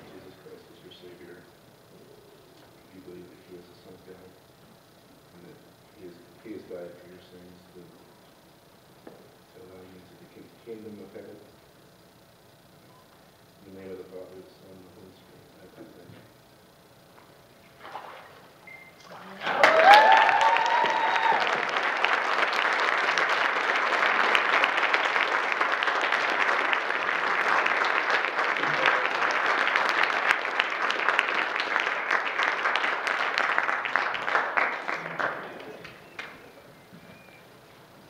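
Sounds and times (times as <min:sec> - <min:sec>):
congregation applauding: 0:19.0 - 0:36.7.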